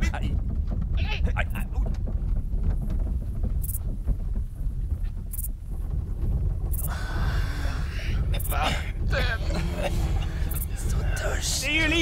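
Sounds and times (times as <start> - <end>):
cart wheels rumbling: 0.0 - 12.0
breathy hiss: 6.8 - 11.5.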